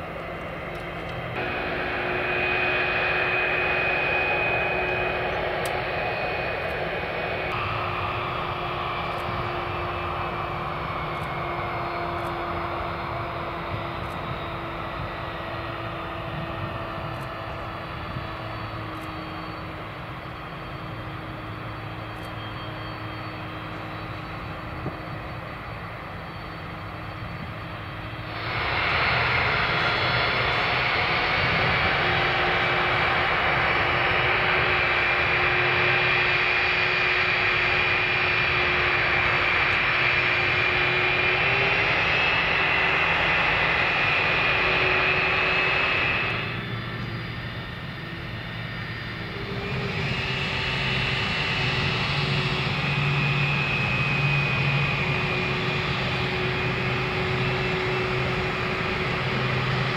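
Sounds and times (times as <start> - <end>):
jet engines whining: 0.0 - 59.9
rushing noise: 1.2 - 12.5, 24.3 - 59.9.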